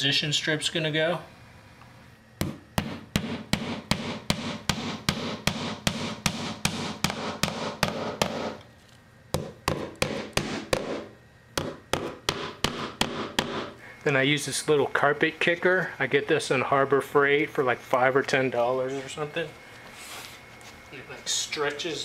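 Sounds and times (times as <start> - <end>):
hammer striking nails: 2.4 - 8.6, 9.4 - 13.8.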